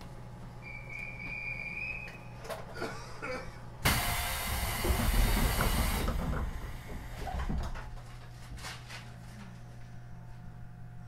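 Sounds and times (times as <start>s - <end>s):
compressed air hissing from train doors: 3.8s - 6.8s.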